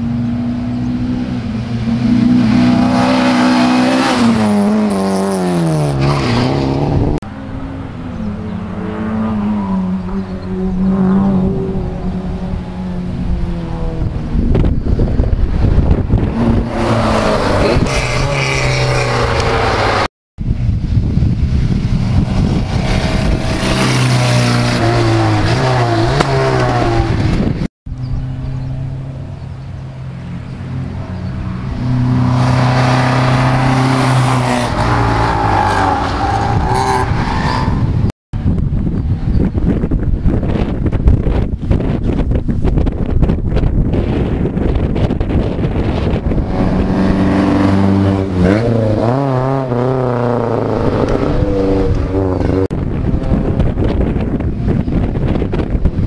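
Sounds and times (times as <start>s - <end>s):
rally car engines revving past: 0.0s - 20.1s, 21.6s - 38.1s, 44.0s - 56.0s.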